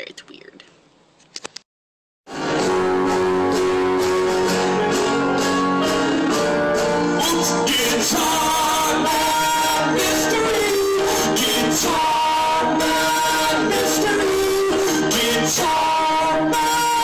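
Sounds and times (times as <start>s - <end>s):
acoustic guitar strummed: 2.3s - 17.0s
drums: 2.3s - 17.0s
keyboard: 2.3s - 17.0s
man singing: 5.8s - 17.0s.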